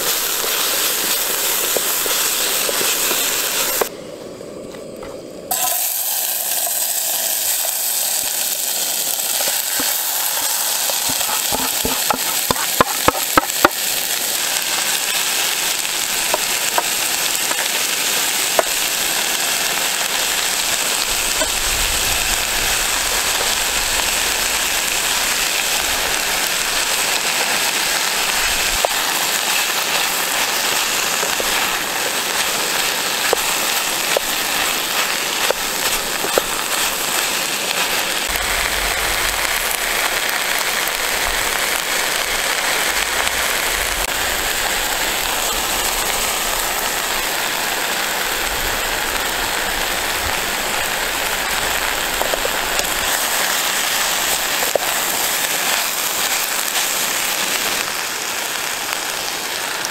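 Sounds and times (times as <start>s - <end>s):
food sizzling in a frying pan: 0.0s - 3.9s, 5.4s - 59.9s.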